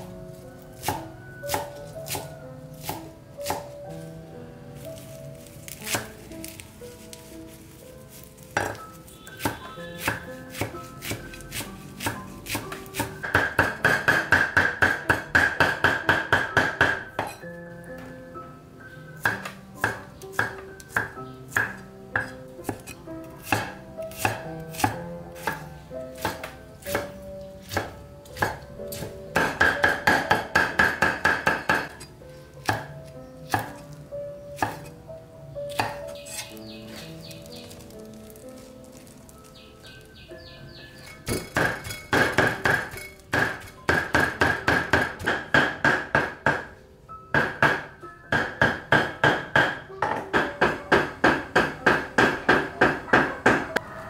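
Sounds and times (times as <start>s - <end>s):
knife chopping on cutting board: 0.8s - 3.8s, 5.7s - 6.6s, 8.4s - 17.4s, 19.2s - 33.9s, 34.6s - 34.9s, 35.7s - 39.0s, 41.3s - 46.6s.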